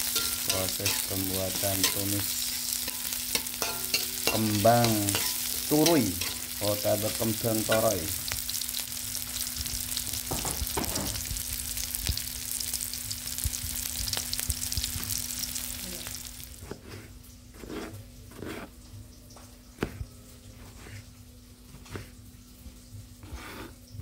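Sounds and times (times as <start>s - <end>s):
metal spatula scraping wok: 0.0s - 8.4s
food sizzling in hot oil: 0.0s - 19.6s
knife cutting on wooden board: 16.6s - 18.7s.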